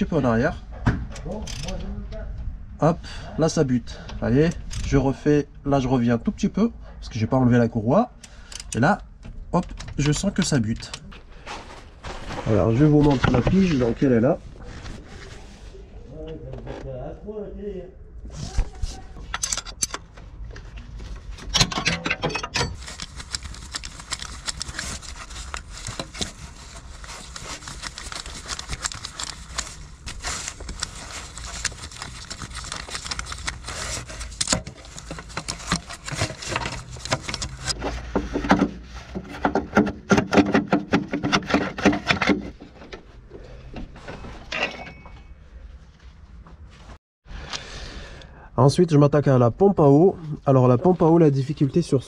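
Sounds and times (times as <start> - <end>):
hand tools clicking and scraping metal: 19.3 - 20.2, 21.4 - 38.7.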